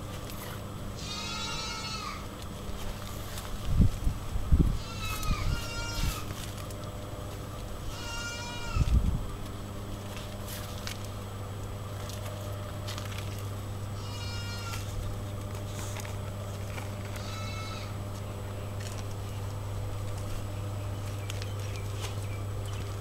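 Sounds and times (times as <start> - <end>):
steady low hum: 0.0 - 23.0
high-pitched animal calls: 1.0 - 2.3, 4.8 - 6.3, 7.9 - 8.9, 14.0 - 14.9, 17.2 - 18.0.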